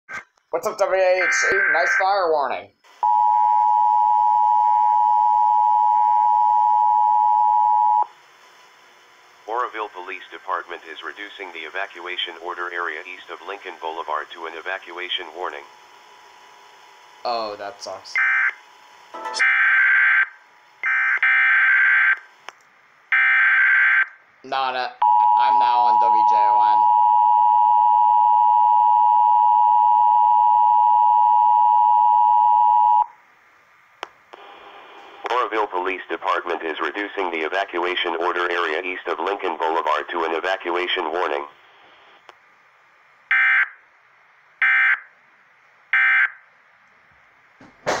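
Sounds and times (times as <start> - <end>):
buzzy data-tone bursts: 0.8 - 2.4.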